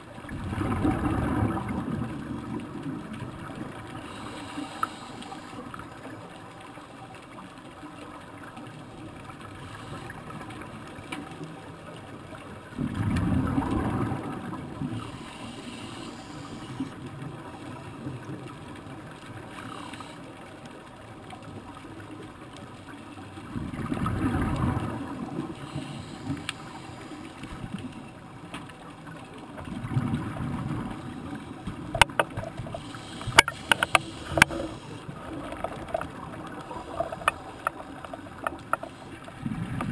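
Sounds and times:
scuba exhalation bubbles: 0.3s - 2.8s, 12.8s - 15.0s
underwater hiss: 3.8s - 6.2s, 9.5s - 10.6s, 13.2s - 18.0s, 19.4s - 20.4s, 24.3s - 27.8s, 31.8s - 39.9s
sharp clicks: 33.2s - 34.7s.

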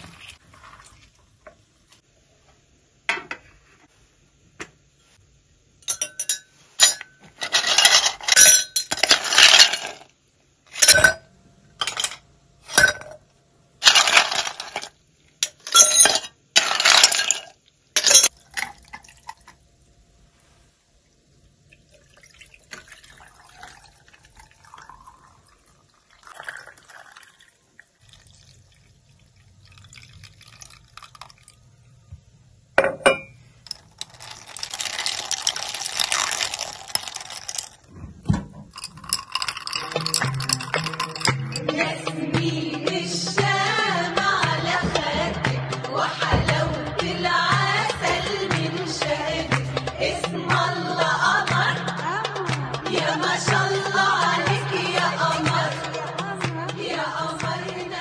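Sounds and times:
ice cubes clinking into mugs: 5.9s - 10.0s, 11.8s - 13.2s, 13.8s - 19.5s, 29.7s - 31.6s, 33.7s - 37.8s, 38.7s - 41.8s
water pouring over ice: 21.7s - 31.7s, 33.7s - 37.9s, 38.8s - 41.3s.

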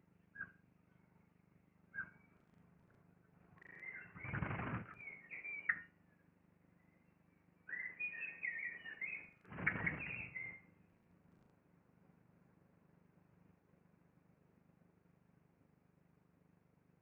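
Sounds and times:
high bird twittering calls: 1.9s - 2.3s, 3.6s - 5.9s, 7.7s - 10.7s
wing flapping and rustling: 4.0s - 5.0s, 9.4s - 10.5s.

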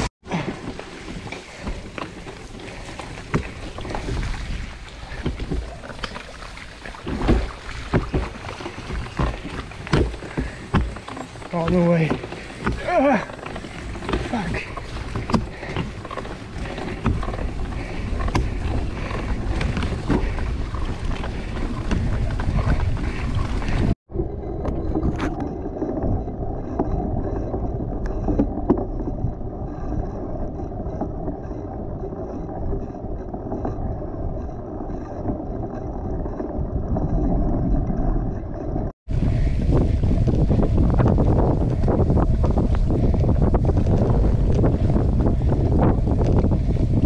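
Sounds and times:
bike tyres rattling on gravel: 0.0s - 28.0s, 39.1s - 47.0s
wind rushing over microphone: 7.0s - 47.0s.

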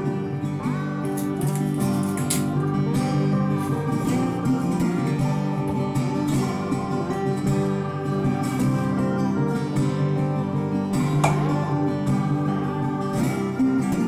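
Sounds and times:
plucked guitar music: 0.0s - 14.0s.

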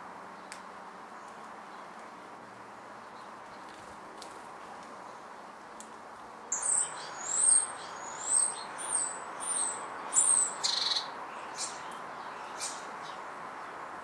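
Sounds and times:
small songbird calling: 6.5s - 13.2s.

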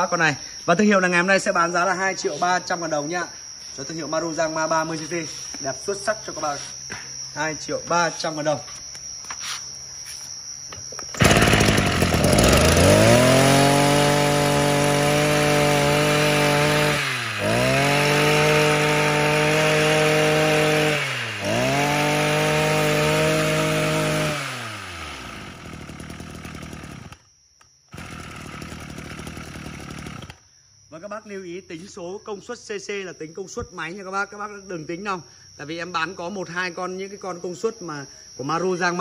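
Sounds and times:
brush cutter engine revving: 11.1s - 27.3s, 27.9s - 30.4s.

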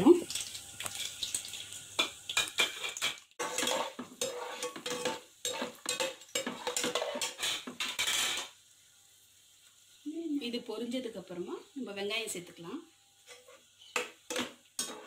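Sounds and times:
oil sizzling: 0.0s - 15.0s
metal spatula scraping pot: 2.0s - 8.6s, 13.2s - 15.0s.

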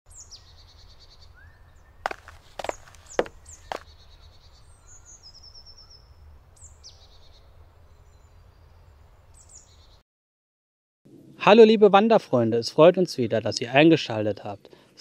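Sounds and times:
songbirds singing: 0.1s - 10.0s.

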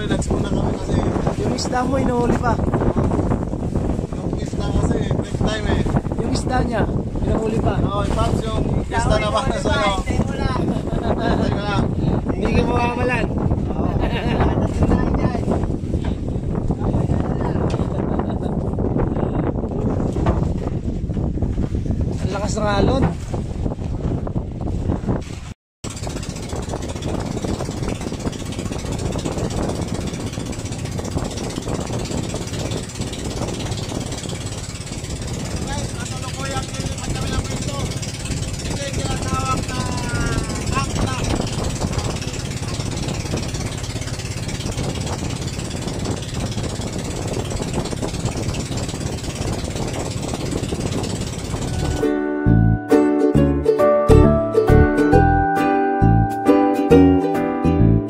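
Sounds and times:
boat engine knocking: 0.0s - 24.6s, 25.8s - 52.7s
waves: 0.0s - 52.2s
wind: 0.0s - 57.4s
strummed ukulele song: 51.8s - 58.0s.

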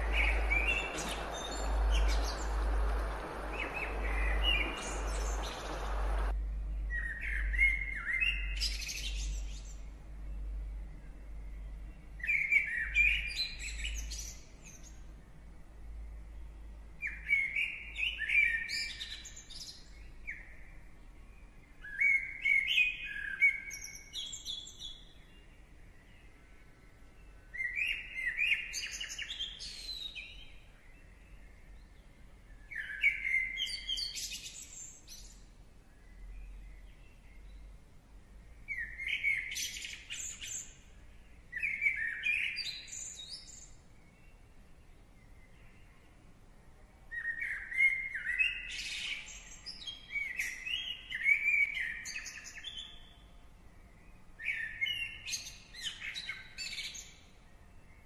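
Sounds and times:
songbird chirping and whistling: 0.0s - 9.4s.

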